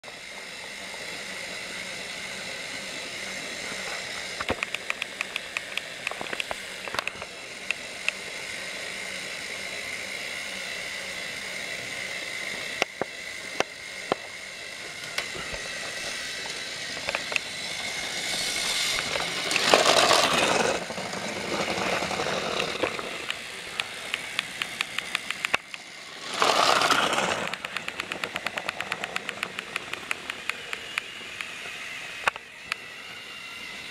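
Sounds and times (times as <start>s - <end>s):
toy train motor whine: 0.0s - 33.9s
rapid regular clicking: 18.8s - 31.5s.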